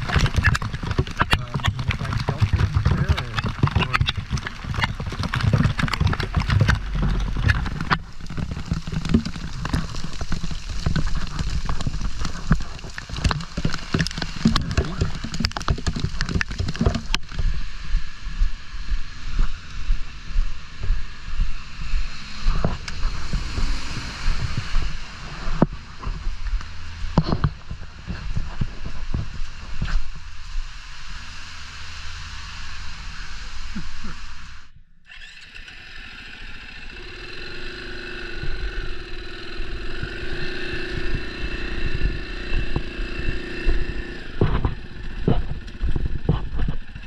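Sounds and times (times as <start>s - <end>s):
sharp ticks and knocks: 0.0s - 17.6s, 38.3s - 47.0s
water and slush splashing: 0.0s - 17.8s, 22.0s - 47.0s
wind noise: 0.0s - 35.4s, 37.0s - 47.0s
motorcycle engine rumble: 0.0s - 47.0s.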